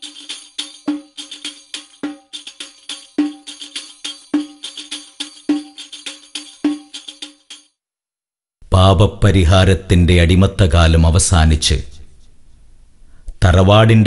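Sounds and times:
pitched drum strokes: 0:00.0 - 0:07.6
tambourine-like jingling hits: 0:00.0 - 0:07.8.

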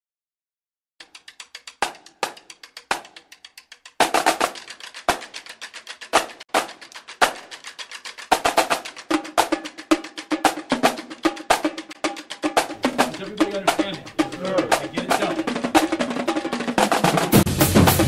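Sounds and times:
pitched drums: 0:01.0 - 0:18.0
snare drums playing: 0:01.0 - 0:18.0
full drumline playing: 0:04.0 - 0:05.4, 0:06.1 - 0:18.0.

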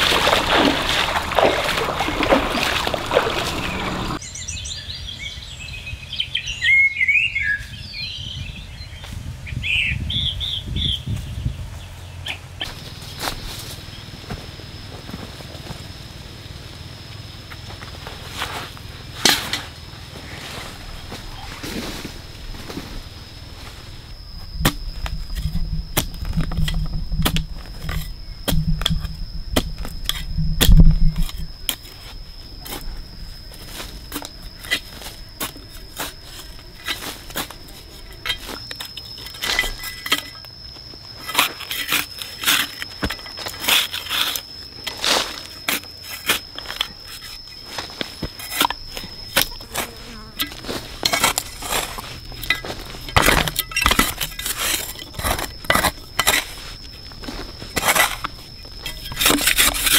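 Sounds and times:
insects droning: 0:00.0 - 0:59.9
low thuds: 0:22.0 - 0:31.7.

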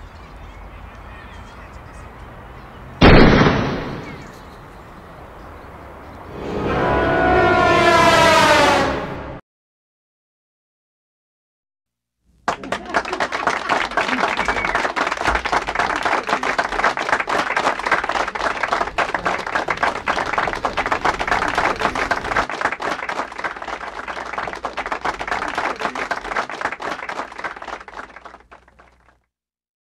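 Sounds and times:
crowd applauding: 0:12.4 - 0:29.2.

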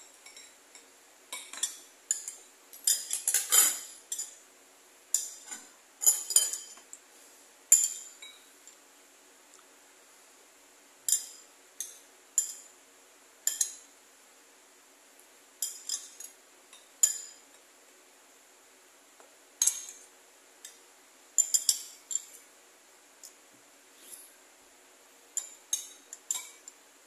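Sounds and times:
metal spoon clinking against bowl: 0:00.1 - 0:04.4, 0:05.1 - 0:06.8, 0:07.7 - 0:08.5, 0:11.1 - 0:12.7, 0:13.4 - 0:13.9, 0:15.6 - 0:17.4, 0:19.6 - 0:20.0, 0:21.4 - 0:22.4, 0:25.4 - 0:26.8.

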